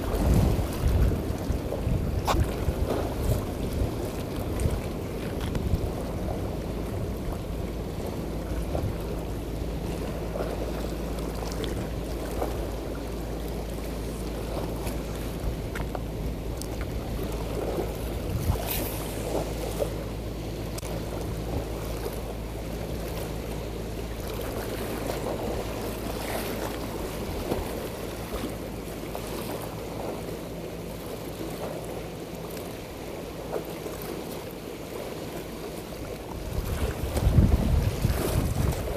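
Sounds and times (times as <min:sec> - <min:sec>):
wind buffeting microphone: 0:00.0 - 0:10.4, 0:14.4 - 0:20.0, 0:36.3 - 0:38.9
low steady hum: 0:00.0 - 0:38.9
waves washing against breakwater: 0:00.0 - 0:38.9.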